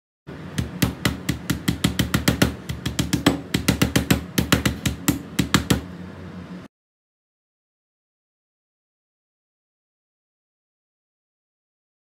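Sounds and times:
strikes on cutting board: 0:00.6 - 0:05.9.

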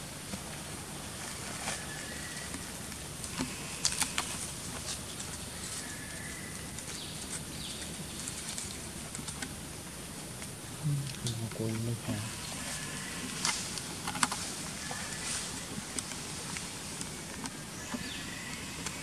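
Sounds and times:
steady outdoor hiss: 0:00.0 - 0:19.0
dry leaves crackling and rustling: 0:01.2 - 0:09.5, 0:12.3 - 0:19.0.

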